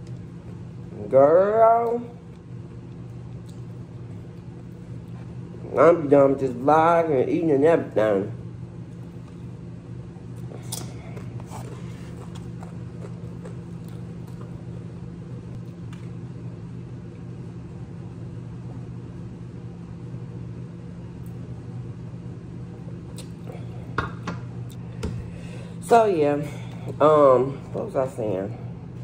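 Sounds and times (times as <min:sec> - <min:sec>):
low room hum: 0:00.0 - 0:29.0.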